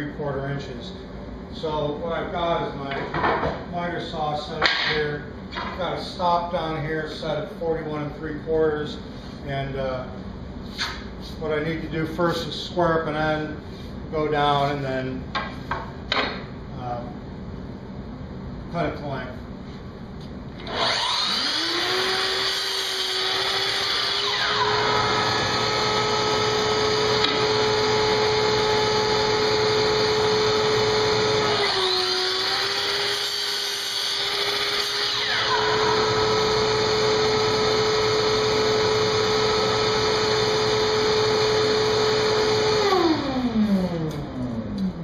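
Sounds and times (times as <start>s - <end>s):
dust extractor humming: 20.6s - 45.0s
saw whine: 20.6s - 45.0s.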